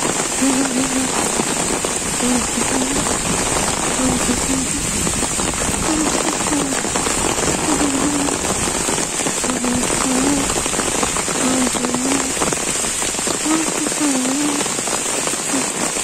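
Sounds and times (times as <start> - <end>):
heavy rain pouring on foliage: 0.0 - 16.0.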